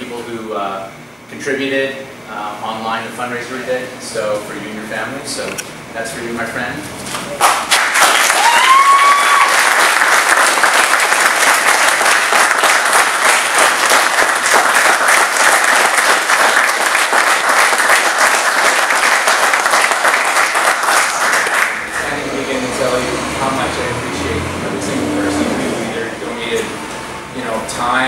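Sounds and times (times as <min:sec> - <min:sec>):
audience applauding: 0:07.4 - 0:22.3.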